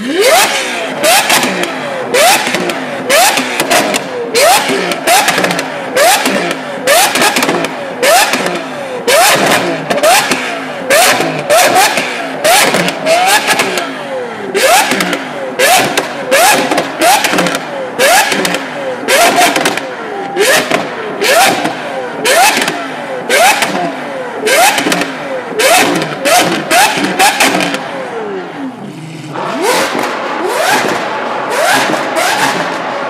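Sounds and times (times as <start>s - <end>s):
car engine revving in blips: 0.0s - 33.0s
exhaust cracks and pops: 14.8s - 19.9s.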